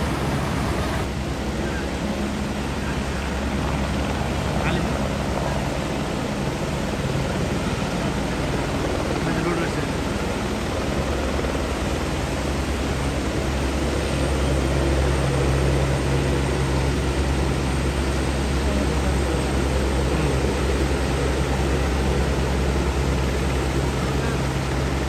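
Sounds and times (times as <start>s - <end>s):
river rushing: 0.0s - 1.5s
helicopter drone: 0.0s - 25.0s.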